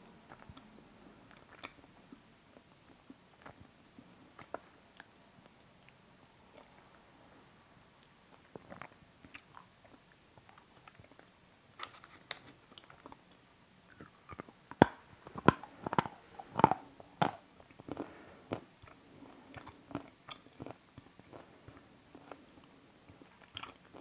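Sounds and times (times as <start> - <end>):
person chewing crunchy sweets: 13.9 - 24.0.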